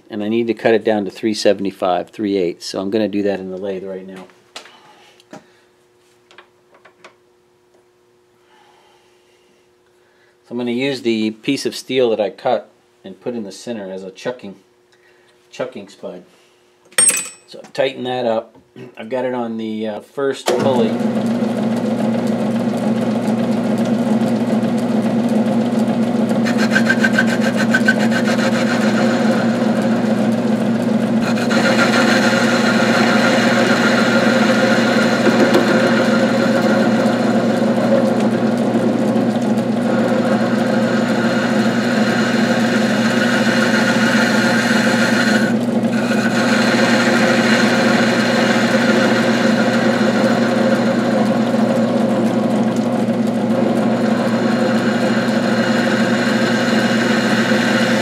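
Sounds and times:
metal lathe humming: 20.5s - 58.0s
tool scraping steel: 26.4s - 29.1s.

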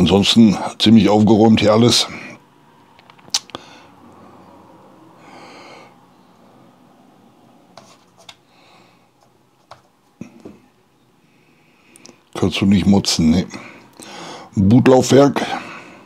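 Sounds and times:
short breath: 3.5s - 4.6s, 13.5s - 14.5s
hands clicking and tapping laptop: 9.2s - 10.6s.

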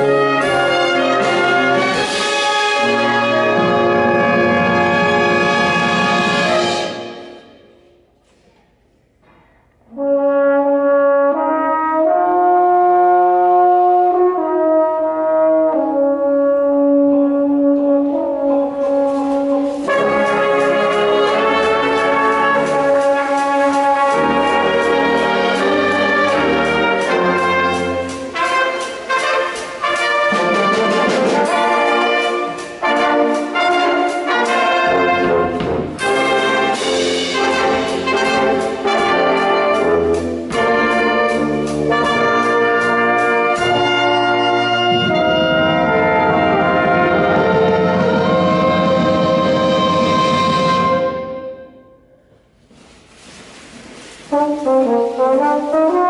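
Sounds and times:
brass chords: 0.0s - 8.1s, 9.8s - 52.8s, 53.9s - 56.0s
drum kit and cymbals: 18.8s - 45.4s.

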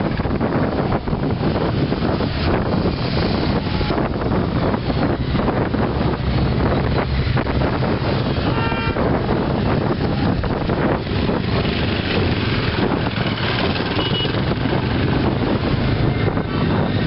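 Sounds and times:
wind buffeting microphone: 0.0s - 17.0s
horn toot: 8.3s - 9.2s, 13.9s - 14.5s
motorcycles riding past: 9.3s - 17.0s.

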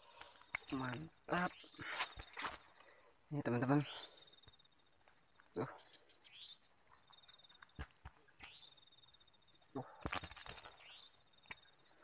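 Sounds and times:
insect chirring: 0.0s - 12.0s.

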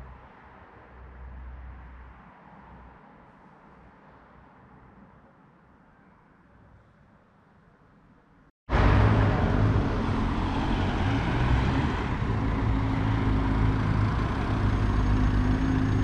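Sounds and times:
car driving past: 8.7s - 16.0s
road traffic: 8.7s - 16.0s.

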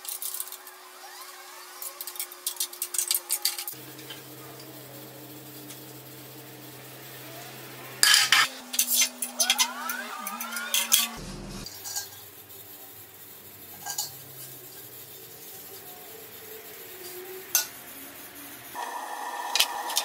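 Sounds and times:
steel parts clinking and scraping: 0.0s - 0.8s, 1.7s - 4.7s, 8.0s - 12.3s, 13.7s - 15.0s
steady whine: 0.1s - 11.7s, 12.4s - 20.0s.

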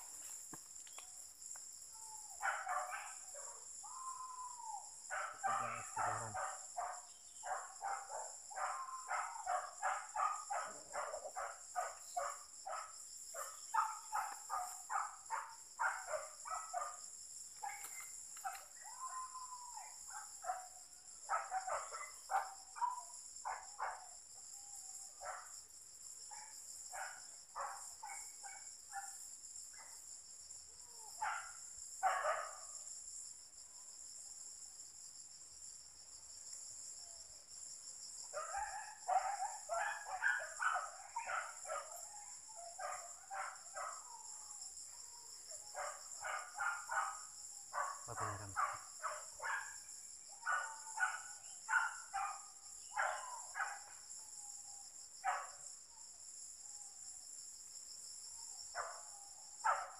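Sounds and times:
crickets and insects droning: 0.0s - 59.9s
dogs barking: 2.4s - 3.7s, 5.1s - 17.0s, 19.8s - 24.1s, 26.3s - 29.2s, 31.2s - 32.6s, 38.3s - 42.0s, 42.7s - 44.3s, 45.7s - 49.8s, 50.4s - 54.0s, 55.2s - 55.6s, 58.8s - 59.9s.

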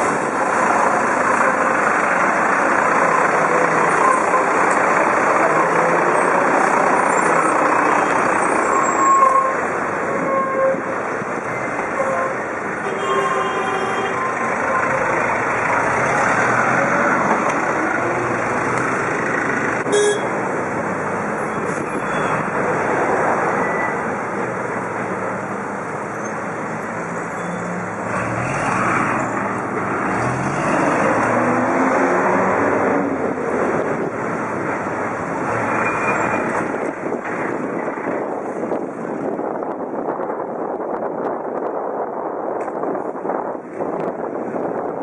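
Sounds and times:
city traffic engines: 0.0s - 45.0s
short horn toot: 19.9s - 20.3s
engine revving: 28.1s - 33.1s.

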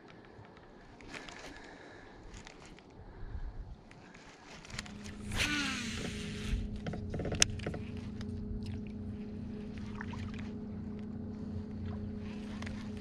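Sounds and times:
fishing reel spool whirring: 4.4s - 13.0s
electric trolling motor humming: 4.6s - 13.0s.

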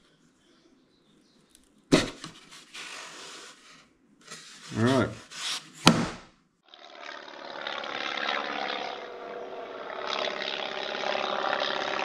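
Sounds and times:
steady engine drone: 6.8s - 12.0s.

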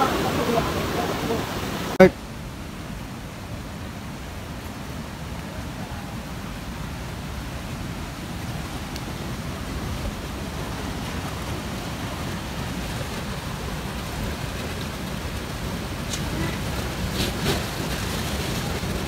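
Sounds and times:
surf breaking on rocks: 0.0s - 2.0s, 4.2s - 19.0s.

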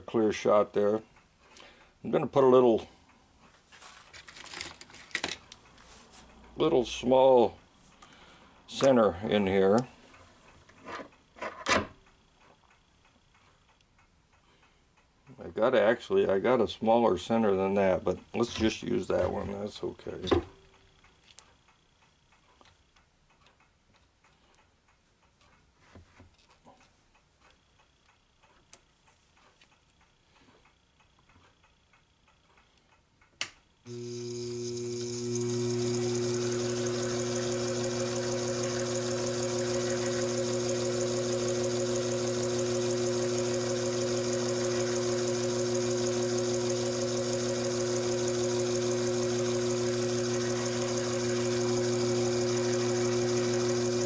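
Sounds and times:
lathe motor switch click: 33.4s - 54.0s
lathe spindle humming: 33.9s - 54.0s.

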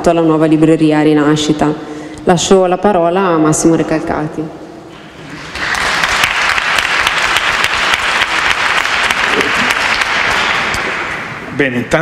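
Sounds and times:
audience applauding: 5.3s - 11.5s.

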